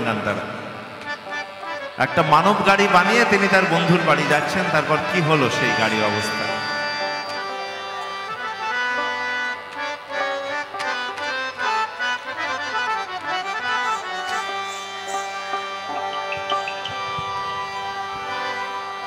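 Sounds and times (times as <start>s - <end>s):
harmonium melody: 0.0s - 19.0s
plucked strings: 12.4s - 19.0s.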